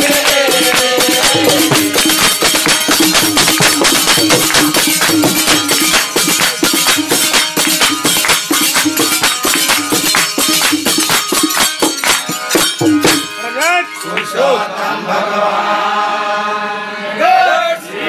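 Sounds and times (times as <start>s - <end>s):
person singing: 0.0s - 2.7s
hand drum beat: 0.0s - 13.4s
harmonium: 0.0s - 18.0s.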